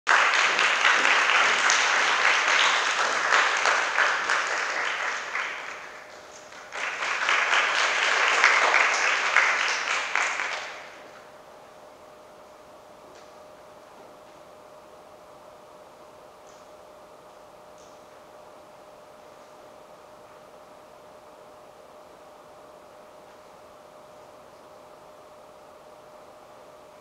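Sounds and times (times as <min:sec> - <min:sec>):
audience applauding: 0:00.1 - 0:11.1.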